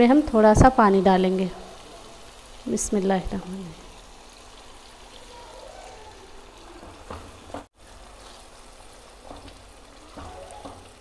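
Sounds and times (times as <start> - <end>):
spatula knocking in pan: 6.8 - 7.7, 9.2 - 11.0.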